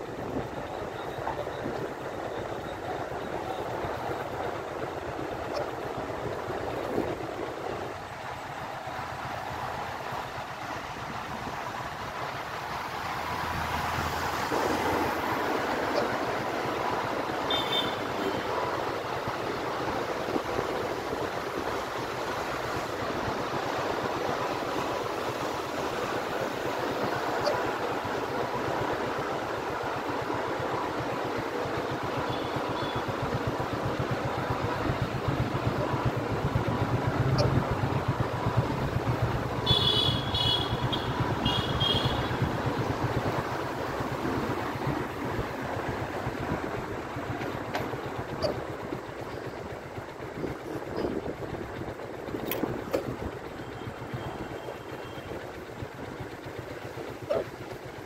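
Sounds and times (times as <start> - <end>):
wind and road noise: 0.0 - 58.0.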